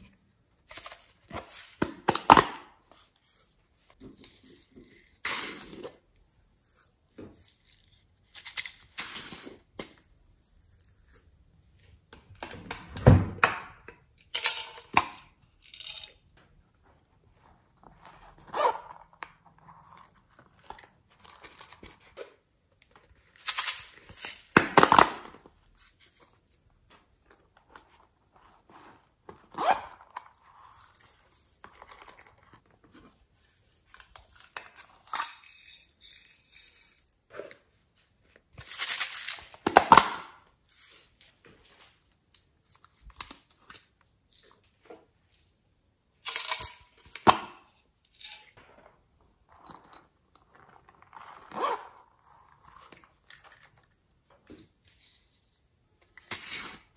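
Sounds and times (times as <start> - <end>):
zippers opening and closing: 18.0 - 20.2, 28.8 - 31.4, 50.7 - 53.4.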